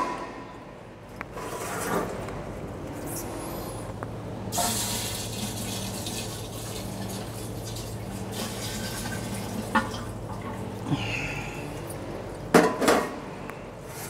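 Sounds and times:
liquid pouring and splashing: 4.6s - 10.6s.

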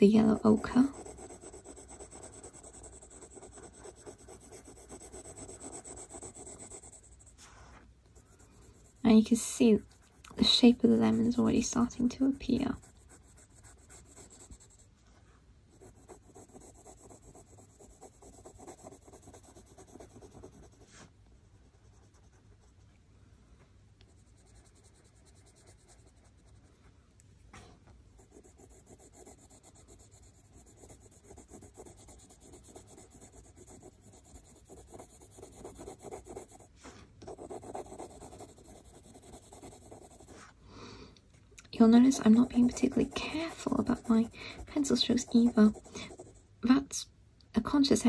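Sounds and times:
pencil scratching on paper: 0.0s - 7.5s, 8.2s - 14.9s, 15.7s - 21.1s, 21.8s - 22.8s, 24.1s - 26.7s, 28.1s - 40.5s, 41.8s - 46.4s
sharp pencil ticks: 0.2s - 7.0s.

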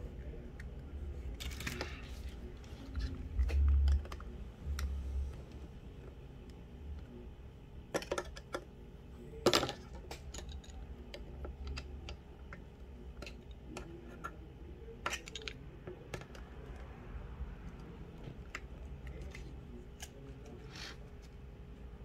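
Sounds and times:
faint low hum: 0.0s - 22.0s
plastic parts clicking and tapping: 3.0s - 4.9s, 7.9s - 8.7s, 9.4s - 14.4s, 15.0s - 16.9s.

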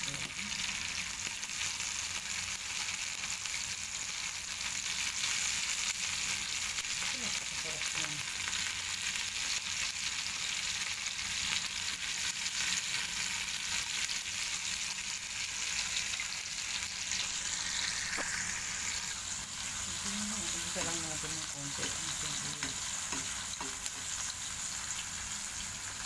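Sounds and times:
onions sizzling in oil: 0.0s - 26.0s
utensil stirring: 19.8s - 24.3s.

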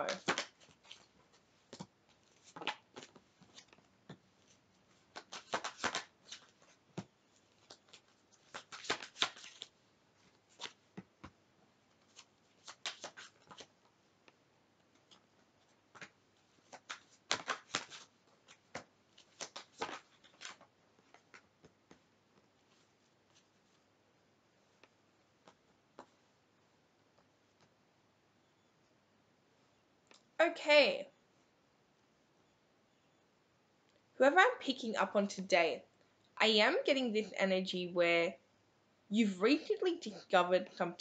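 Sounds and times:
cards being shuffled: 0.0s - 11.4s, 12.0s - 13.8s, 14.9s - 23.8s.

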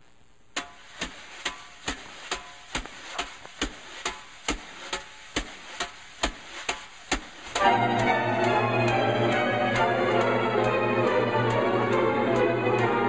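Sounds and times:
percussive clicks keeping time: 7.6s - 13.0s.

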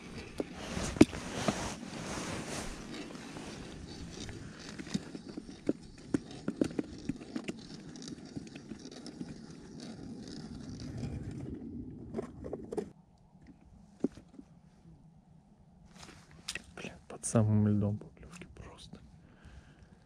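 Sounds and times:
wind buffeting microphone: 9.4s - 12.9s.

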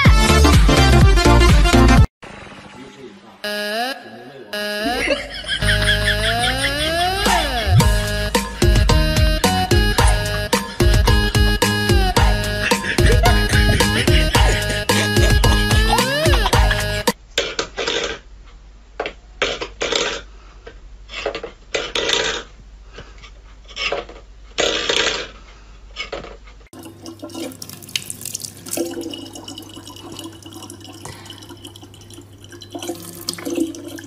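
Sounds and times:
low hum: 4.8s - 17.1s
clattering and scraping: 23.2s - 26.7s
tap water trickling into bottle: 26.8s - 34.0s.

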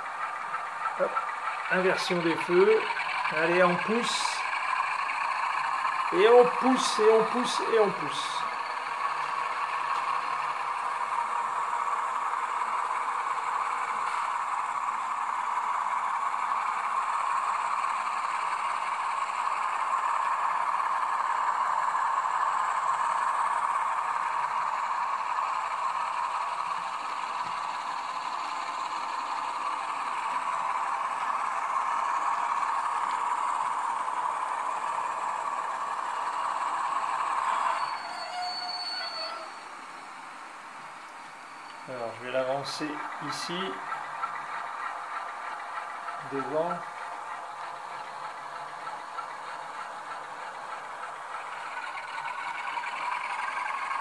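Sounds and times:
model locomotive engine and rolling: 0.0s - 54.0s
brief high squeal: 37.5s - 39.6s.

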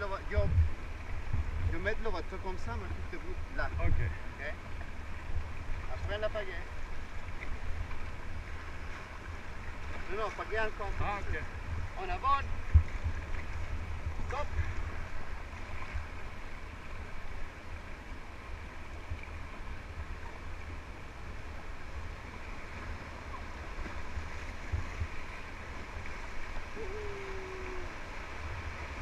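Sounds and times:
low rumble: 0.0s - 1.9s
whitewater river rushing: 19.7s - 29.0s.

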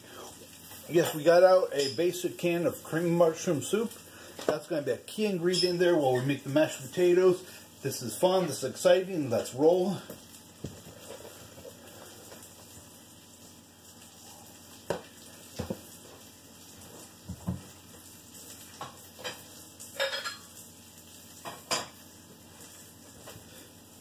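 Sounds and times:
meat sizzling in a pan: 0.0s - 24.0s
pots and pans clinking: 1.0s - 2.2s, 18.7s - 20.6s, 21.4s - 22.0s.

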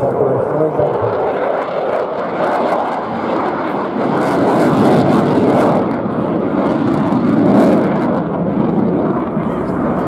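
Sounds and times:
jet engine roaring in afterburner: 0.0s - 10.0s.

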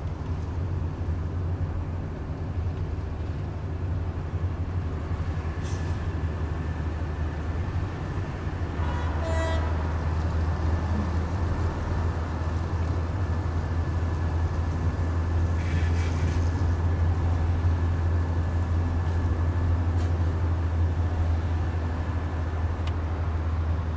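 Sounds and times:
car engine and road noise: 0.0s - 23.9s
car horn: 8.8s - 9.8s.

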